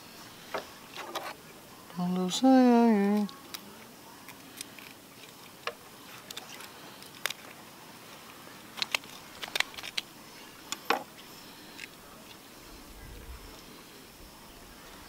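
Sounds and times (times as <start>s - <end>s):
faint steady hiss: 0.0s - 15.0s
knife cutting fish bait: 8.8s - 10.1s.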